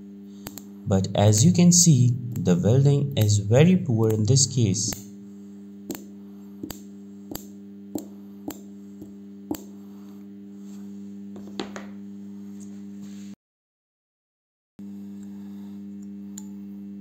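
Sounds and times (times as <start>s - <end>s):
spot welder humming: 0.0s - 12.9s, 14.8s - 17.0s
sharp welding snaps: 0.4s - 0.7s, 5.9s - 8.7s.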